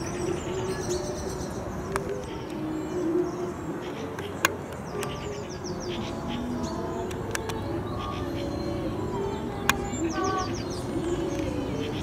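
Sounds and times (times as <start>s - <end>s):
dove cooing: 0.0s - 12.0s
songbirds chirping and trilling: 0.0s - 12.0s
sharp clicks: 7.0s - 7.6s.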